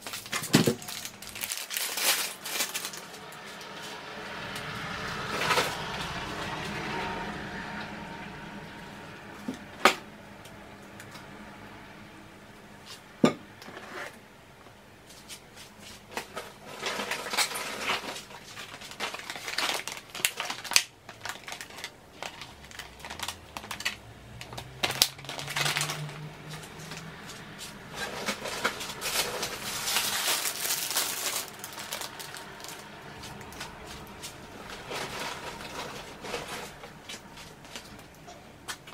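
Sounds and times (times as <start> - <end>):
plastic packaging crinkling: 0.0 - 6.4, 15.9 - 38.9.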